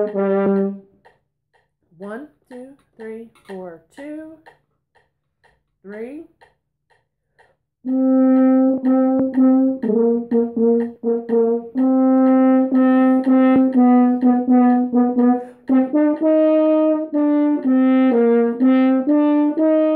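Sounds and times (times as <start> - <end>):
french horn melody: 0.0 - 0.9, 7.9 - 19.9.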